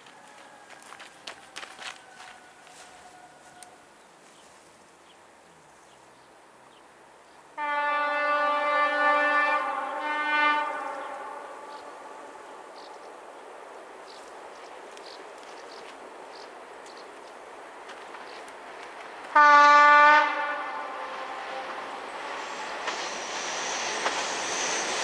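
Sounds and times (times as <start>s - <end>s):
train approaching: 0.0s - 3.9s, 7.6s - 25.0s
train horn blasts: 7.6s - 12.4s, 19.3s - 22.0s.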